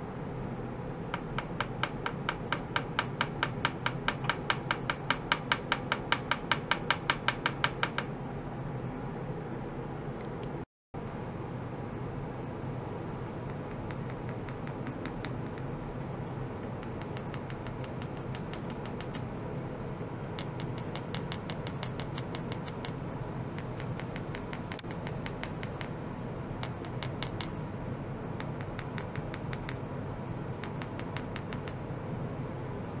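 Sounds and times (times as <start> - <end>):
steady low hum: 0.0 - 33.0
mallet tapping metal rods: 1.2 - 8.1, 13.5 - 15.7, 16.8 - 19.2, 20.4 - 23.0, 23.6 - 26.0, 26.6 - 27.6.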